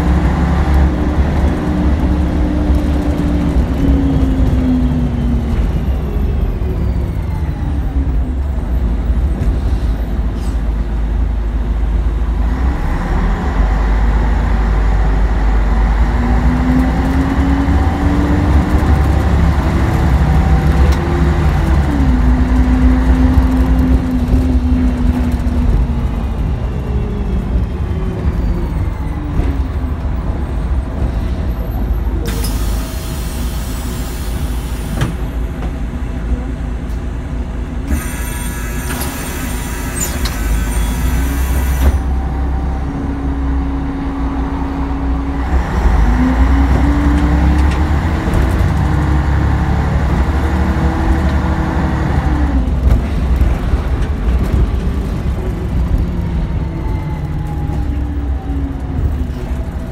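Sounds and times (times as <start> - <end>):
bus engine droning: 0.0 - 59.9.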